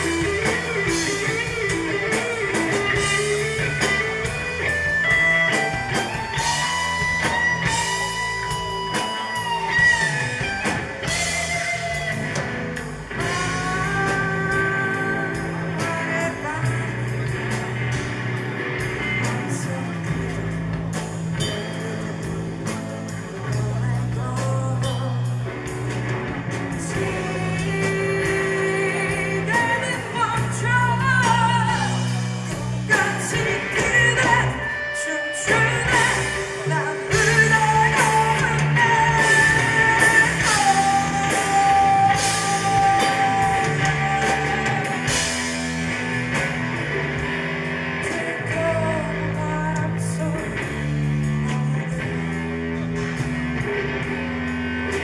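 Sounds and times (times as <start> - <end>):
distorted electric guitar: 0.0 - 55.0
drum kit: 0.0 - 55.0
woman singing: 13.2 - 17.4, 23.4 - 25.5, 26.8 - 32.2, 32.9 - 45.3, 48.0 - 52.3.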